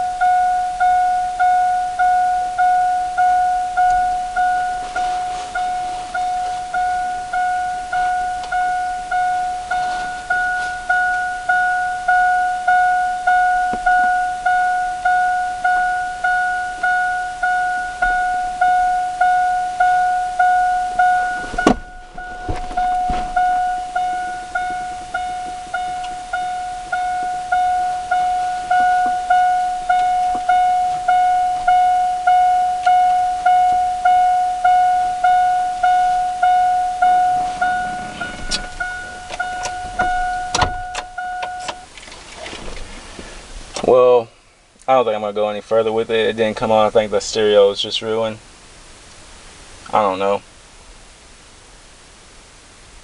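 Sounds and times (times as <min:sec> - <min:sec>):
vehicle warning chime: 0:00.0 - 0:42.0.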